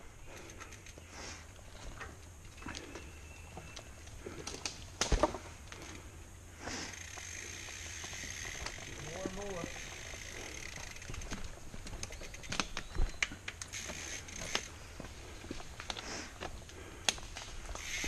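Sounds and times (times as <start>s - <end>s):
mountain bikes knocking and rattling: 0.1s - 18.0s
footsteps on dirt trail: 6.7s - 18.0s
steady hiss: 15.9s - 18.0s.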